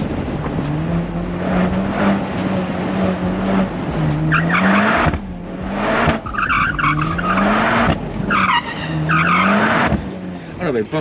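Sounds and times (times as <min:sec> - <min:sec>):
car engine revving: 0:00.0 - 0:11.0
tyres squealing: 0:04.2 - 0:09.9.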